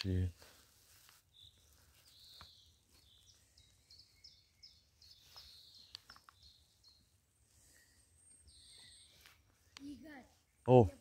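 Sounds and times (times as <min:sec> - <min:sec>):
bird chirping: 0:01.0 - 0:11.0.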